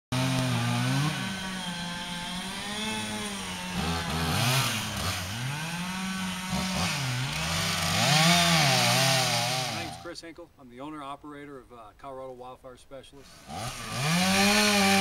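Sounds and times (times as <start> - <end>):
chainsaw revving: 0.1 - 10.1, 13.2 - 15.0.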